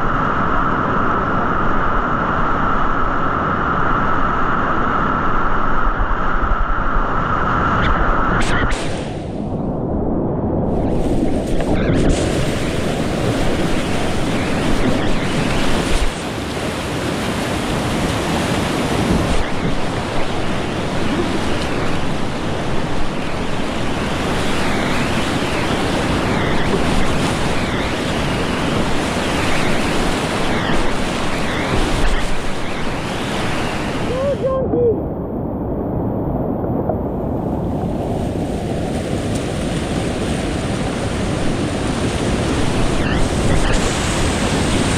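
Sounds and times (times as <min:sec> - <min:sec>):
mountain creek rushing: 0:10.9 - 0:34.7.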